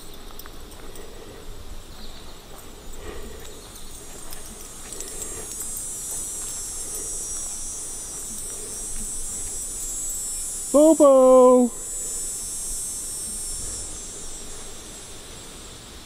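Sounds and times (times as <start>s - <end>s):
footsteps on grass: 0.0s - 10.4s
insects buzzing: 0.0s - 16.0s.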